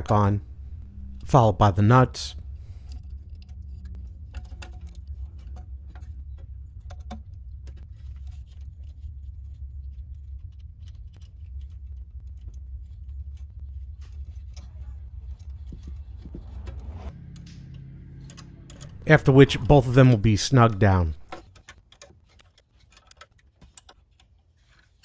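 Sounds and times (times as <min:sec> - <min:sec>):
steady low hum: 0:00.0 - 0:21.4.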